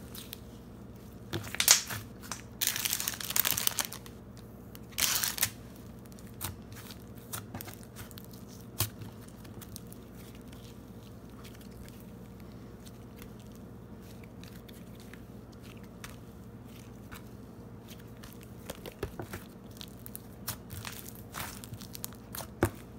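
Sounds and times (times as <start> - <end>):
slime crackling tear: 1.5 - 4.1, 4.9 - 5.6.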